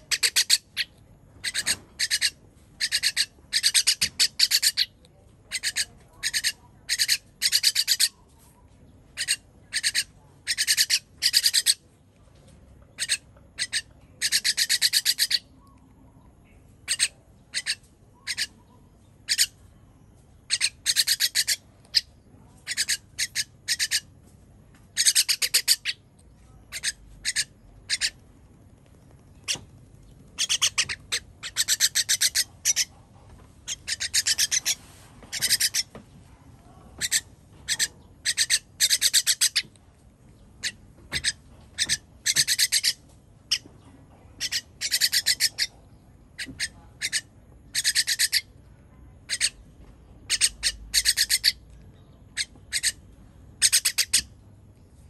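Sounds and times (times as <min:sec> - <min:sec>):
bird harsh buzzy begging calls: 0:30.4 - 0:32.9.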